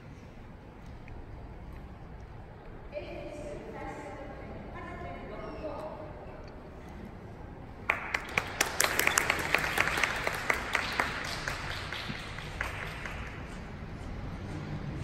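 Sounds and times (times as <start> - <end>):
audience applauding: 7.8 - 14.0.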